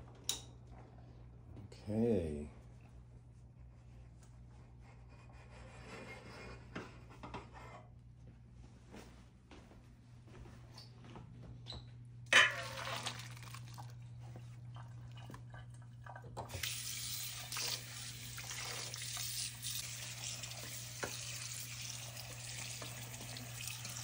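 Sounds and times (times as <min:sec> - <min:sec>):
low steady hum: 0:00.0 - 0:24.0
kitchen tap running: 0:12.3 - 0:24.0
water splashing into colander: 0:12.3 - 0:24.0.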